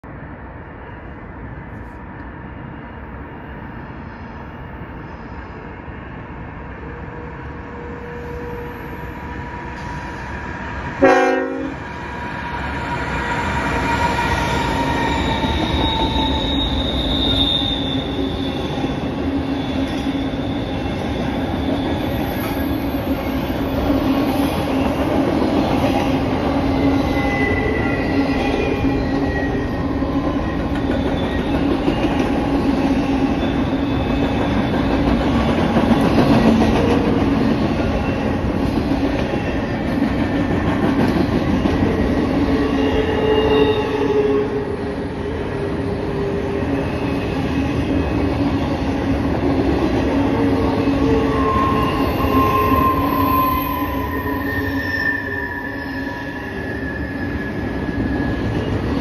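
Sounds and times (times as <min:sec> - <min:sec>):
train wheels rolling on rails: 0:01.0 - 0:59.0
train horn blast: 0:11.0 - 0:11.8
wheel squeal: 0:13.8 - 0:23.8, 0:42.6 - 0:44.3, 0:51.0 - 0:59.0.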